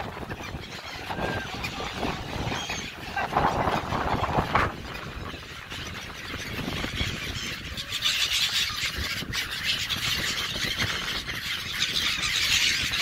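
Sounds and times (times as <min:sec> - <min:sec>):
flock of gulls calling: 0:00.0 - 0:13.0.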